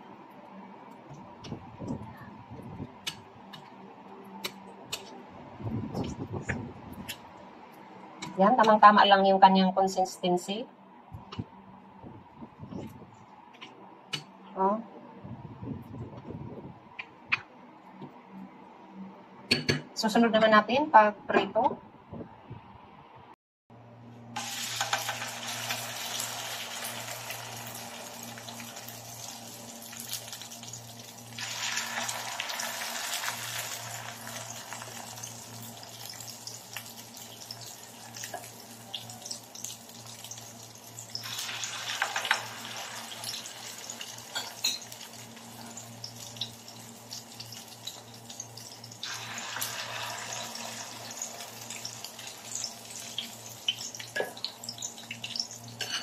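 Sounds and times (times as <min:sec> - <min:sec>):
hot oil sizzling and crackling: 0:24.4 - 0:56.0.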